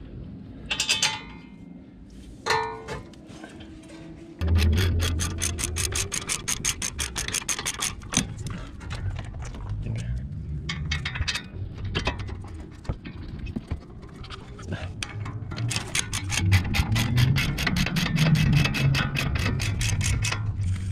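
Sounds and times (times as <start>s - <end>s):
socket ratchet clicking: 4.4s - 8.2s, 15.6s - 20.3s
metal rubbing: 4.4s - 9.4s, 10.5s - 20.9s.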